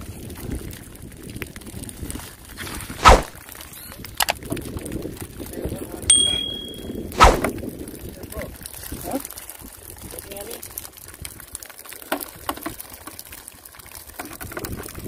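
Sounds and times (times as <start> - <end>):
notification chime: 6.1 - 7.0.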